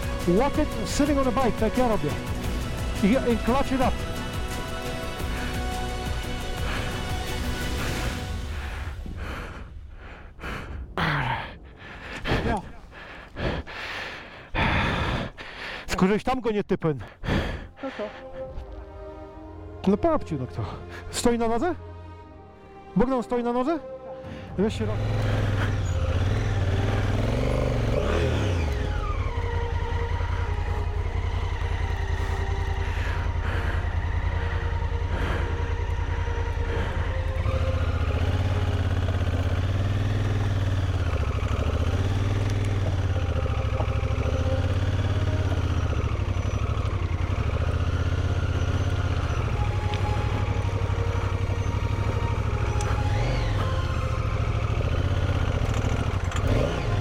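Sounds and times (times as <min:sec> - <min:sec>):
motorcycle engine revving: 0:00.0 - 0:09.1, 0:24.5 - 0:57.0.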